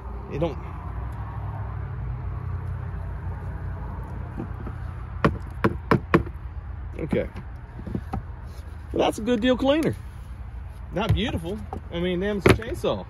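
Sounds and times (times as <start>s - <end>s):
hard plastic knocks: 4.4s - 6.4s, 11.0s - 12.8s.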